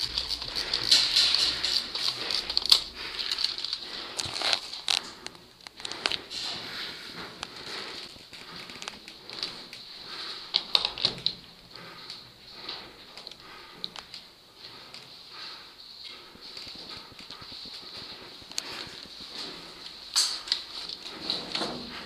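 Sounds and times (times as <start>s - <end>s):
gear rustling: 0.0s - 11.2s
footsteps crackling on rubble: 0.0s - 22.0s.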